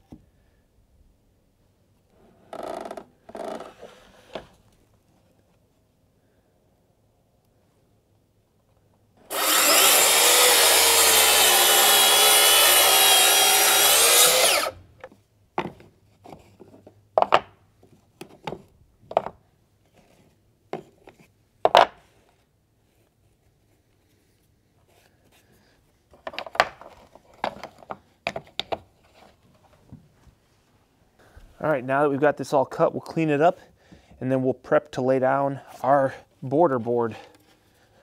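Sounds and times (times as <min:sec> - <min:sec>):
saw cutting boards: 0:09.3 - 0:14.8.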